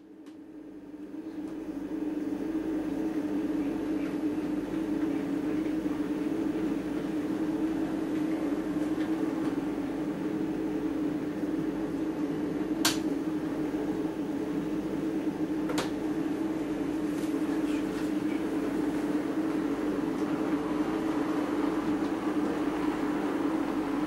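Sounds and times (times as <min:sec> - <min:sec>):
sharp click: 0:12.8 - 0:13.1
wheels rumbling on track: 0:18.6 - 0:24.0.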